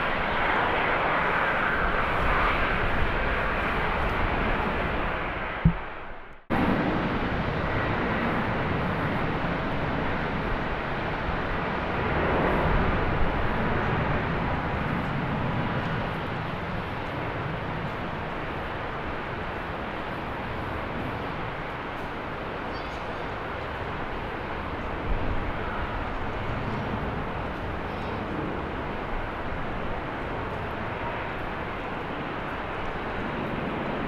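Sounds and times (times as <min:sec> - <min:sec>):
jet engine roar: 0:00.0 - 0:34.0.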